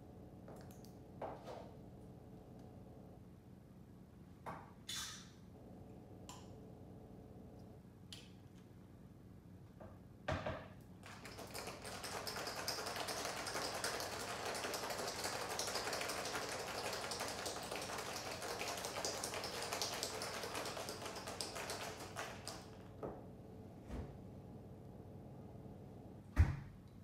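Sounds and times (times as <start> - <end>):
ice rattling in metal shaker: 11.0 - 22.7.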